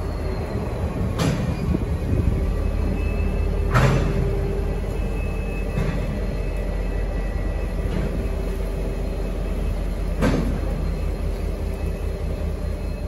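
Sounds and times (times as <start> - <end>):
wheel clank: 3.0 - 6.6.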